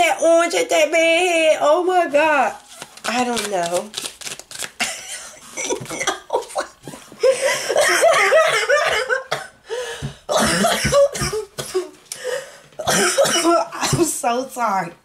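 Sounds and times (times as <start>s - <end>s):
woman laughing hard: 4.8s - 9.4s.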